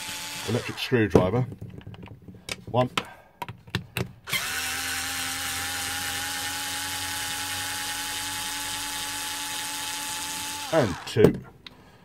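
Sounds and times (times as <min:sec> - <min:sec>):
electric screwdriver motor whine: 0:00.0 - 0:00.9, 0:04.3 - 0:11.2.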